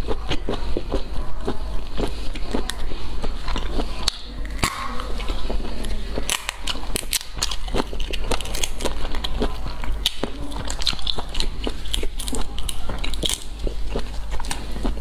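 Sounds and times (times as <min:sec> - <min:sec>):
wet chewing: 0:00.0 - 0:15.0
snail shells clicking and cracking: 0:06.2 - 0:15.0.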